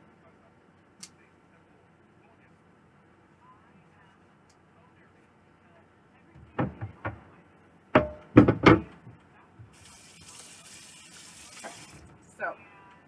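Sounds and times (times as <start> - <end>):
tap water running into sink: 9.8 - 12.1.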